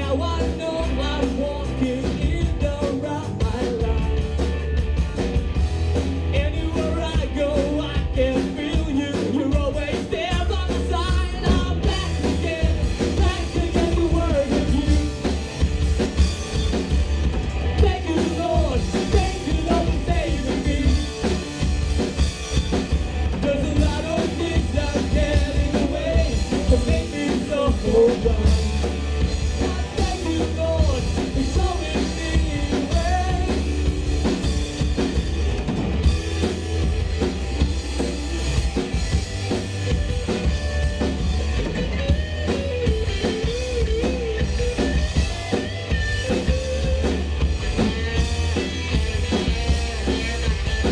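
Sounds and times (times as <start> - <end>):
rock band playing: 0.0 - 50.9.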